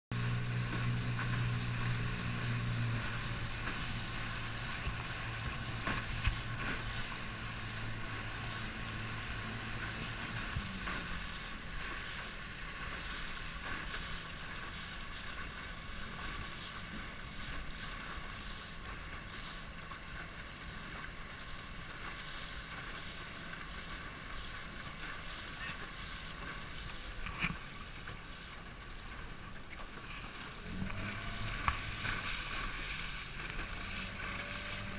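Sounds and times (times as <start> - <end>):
wind on microphone: 0.1 - 19.0
low hum: 0.1 - 34.9
water splashing along boat hull: 0.1 - 34.9.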